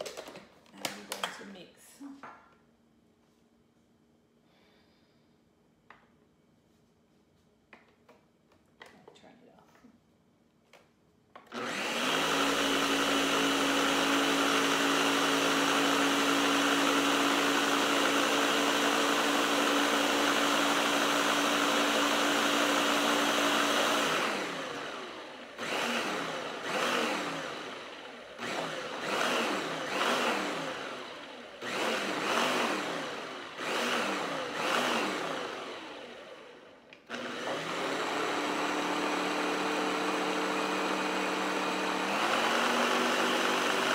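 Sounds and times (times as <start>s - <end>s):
blender blending thick mixture: 11.4s - 43.9s.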